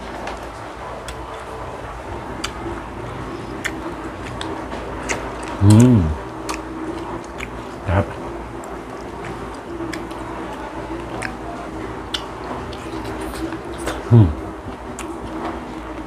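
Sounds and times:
sharp clicks of eating seafood: 3.4s - 11.4s, 12.0s - 14.1s, 14.7s - 15.6s
chewing and mouth smacks: 3.4s - 14.1s, 14.7s - 15.6s
man's short voiced sound: 5.6s - 6.2s, 7.9s - 8.1s, 14.1s - 14.4s.

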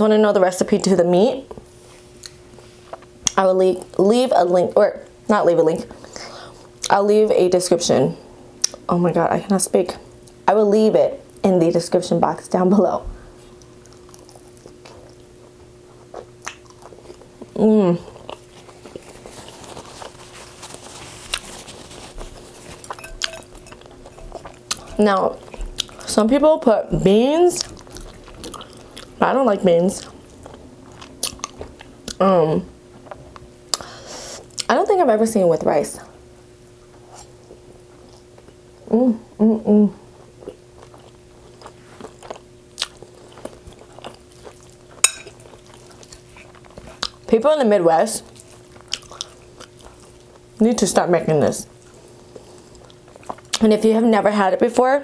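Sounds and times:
faint steady hum: 0.0s - 55.0s
person chewing: 13.4s - 26.3s, 27.5s - 29.2s, 30.0s - 32.2s, 40.1s - 47.3s, 48.2s - 50.6s, 51.7s - 53.6s
fork clinking on glass bowl: 22.9s - 25.1s, 45.0s - 45.4s.

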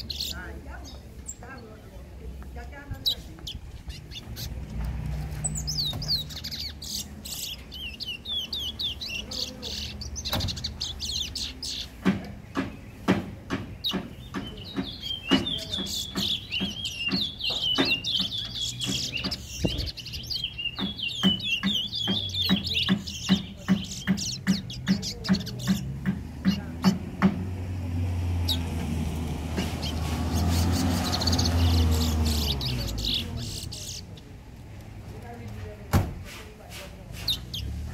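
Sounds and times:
songbird chirping: 0.0s - 37.9s
knocking in background: 10.2s - 33.0s.

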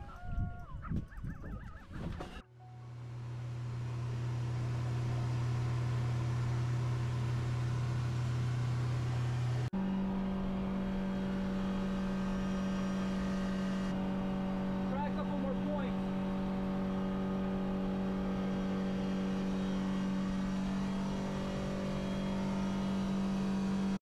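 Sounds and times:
boat engine humming: 1.5s - 24.0s.

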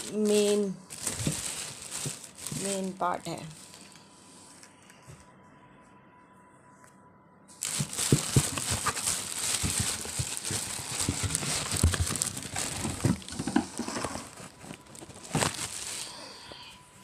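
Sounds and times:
plastic wrap crinkling: 0.0s - 4.0s, 7.6s - 16.6s
cardboard rubbing and knocking: 7.6s - 15.7s.

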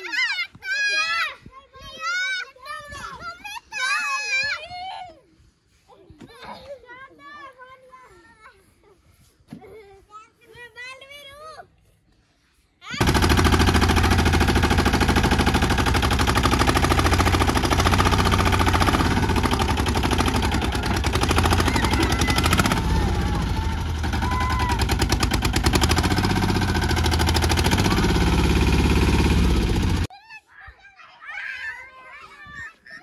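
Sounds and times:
small tractor engine running: 13.0s - 30.1s.

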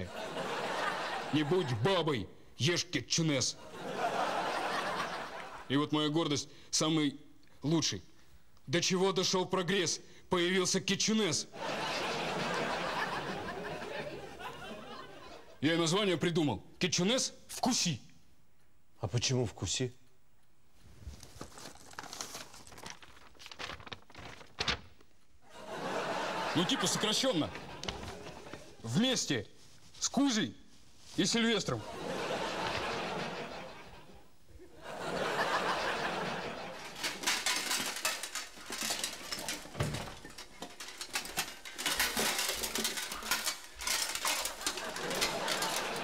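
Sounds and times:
paper rustling and crinkling: 20.8s - 25.2s, 26.8s - 28.9s, 36.7s - 46.0s
armour plates clinking: 36.6s - 46.0s.

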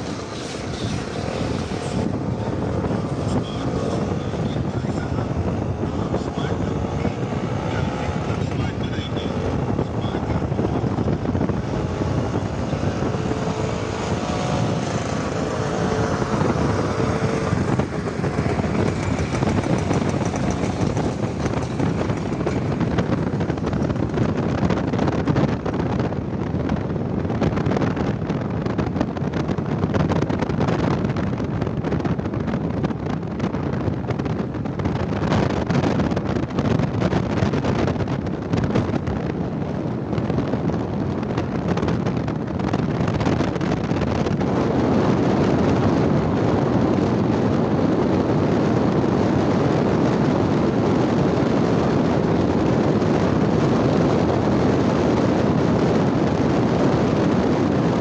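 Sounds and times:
motorbike engine and road noise: 0.0s - 58.0s
wind rushing over microphone: 0.0s - 58.0s.

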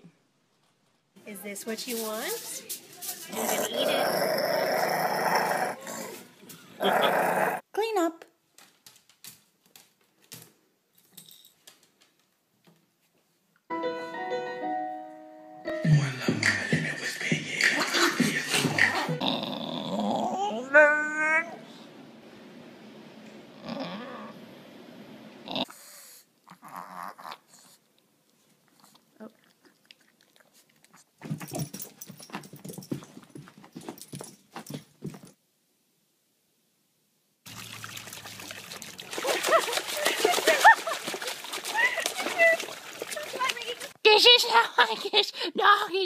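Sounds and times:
dog rustling in wicker basket: 1.7s - 3.7s
piano music: 13.7s - 16.7s.

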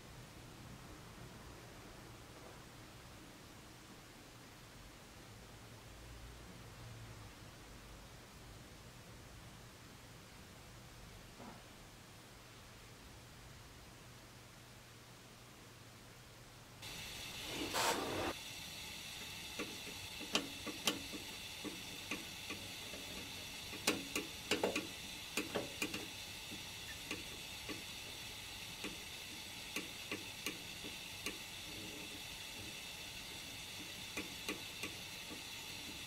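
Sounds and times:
gas burner hissing: 16.8s - 36.0s.

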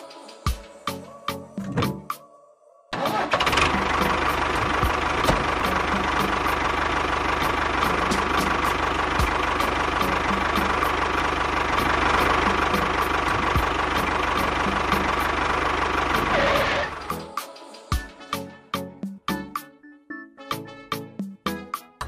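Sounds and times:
tractor engine running: 3.0s - 17.3s.

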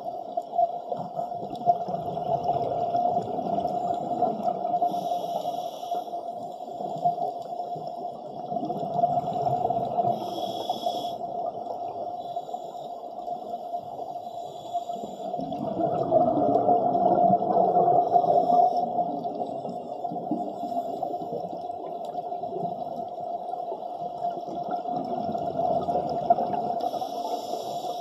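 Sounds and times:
underwater bubbles gurgling: 0.0s - 28.0s
regulator hisses: 4.9s - 6.2s, 10.1s - 11.2s, 26.9s - 28.0s.

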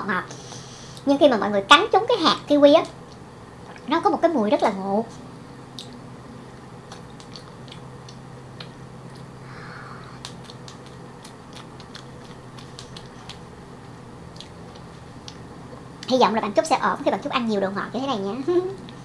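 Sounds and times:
wet mouth clicks and smacks: 6.9s - 9.3s, 10.2s - 13.5s
soft bite: 6.9s - 9.4s, 10.0s - 13.5s.

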